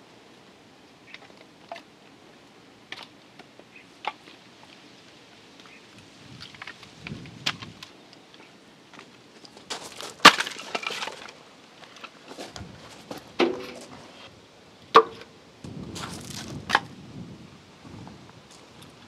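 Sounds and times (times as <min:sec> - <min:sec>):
logs knocking and clattering: 0:09.7 - 0:14.1.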